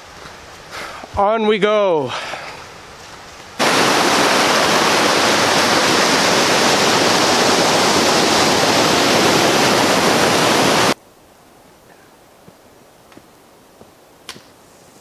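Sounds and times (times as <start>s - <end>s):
river rapids rushing: 3.6s - 11.0s.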